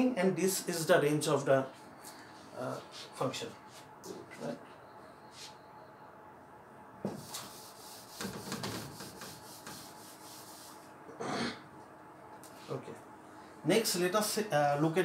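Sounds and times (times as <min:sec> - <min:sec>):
eraser wiping whiteboard: 0:07.1 - 0:10.9.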